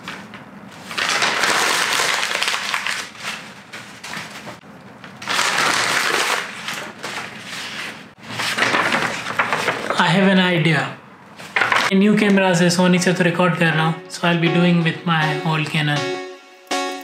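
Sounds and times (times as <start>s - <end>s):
paper crumpling: 0.8s - 4.6s, 5.2s - 10.0s.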